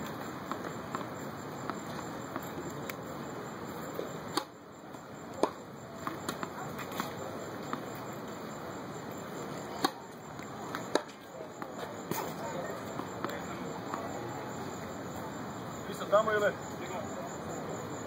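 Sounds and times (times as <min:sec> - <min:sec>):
tennis ball bouncing and racket hits: 0:00.0 - 0:03.0, 0:03.8 - 0:08.5, 0:09.5 - 0:14.2.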